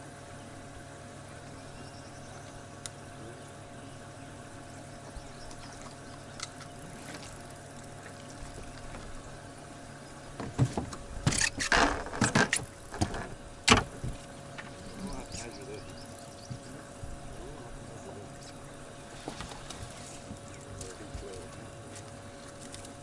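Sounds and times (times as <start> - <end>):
boat motor humming: 0.0 - 23.0
knocks and clatter on boat deck: 8.0 - 9.2, 10.3 - 23.0.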